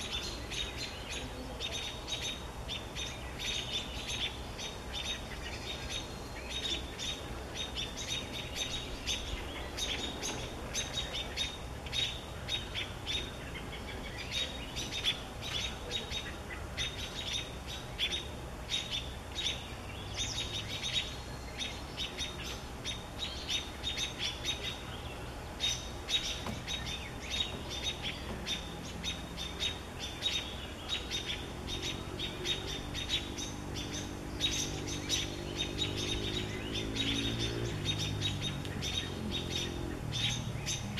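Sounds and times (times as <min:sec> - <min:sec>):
robins alarm calls: 0:00.0 - 0:40.9.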